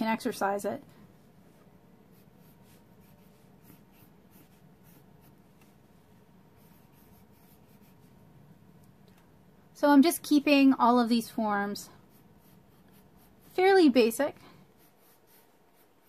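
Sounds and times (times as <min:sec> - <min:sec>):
pencil scratching on paper: 0:02.0 - 0:05.8, 0:06.5 - 0:08.2, 0:11.9 - 0:16.0.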